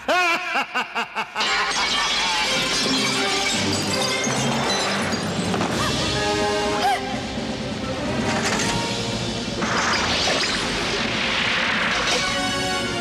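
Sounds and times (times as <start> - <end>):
man laughing maniacally: 0.0 - 1.8
glass shattering and raining down: 1.4 - 6.1
orchestral film music: 3.1 - 13.0.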